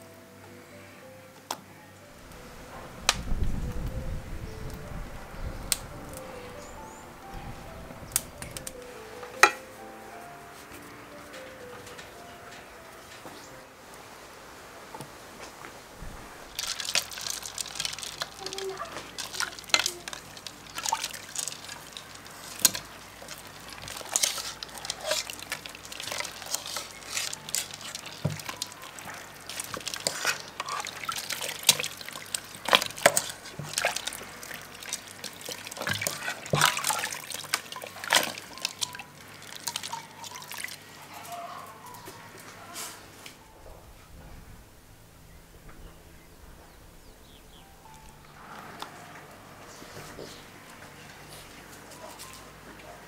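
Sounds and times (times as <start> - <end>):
wet squelches and splashes: 16.5 - 41.2.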